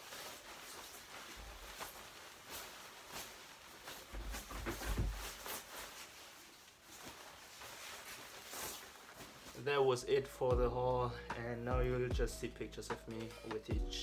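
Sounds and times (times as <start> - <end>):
nylon jacket swishing: 0.0 - 10.2
dull low thumps: 10.5 - 11.0, 11.7 - 12.5.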